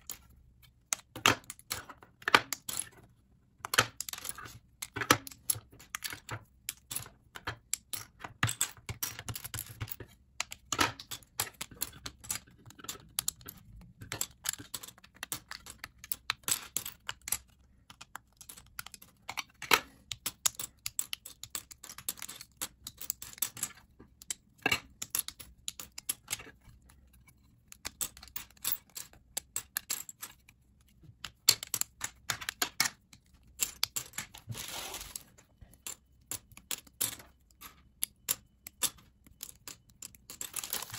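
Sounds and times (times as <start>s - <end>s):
plastic bricks clicking and clattering: 0.0s - 40.9s
plastic pieces rattling: 31.2s - 40.9s.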